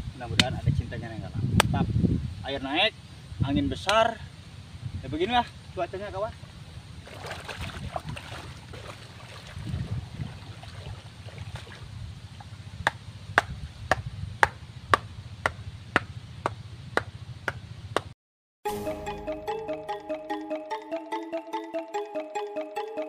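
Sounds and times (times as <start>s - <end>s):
wind buffeting microphone: 0.0s - 3.9s, 4.7s - 5.4s, 6.4s - 15.7s
water sloshing: 7.0s - 12.6s.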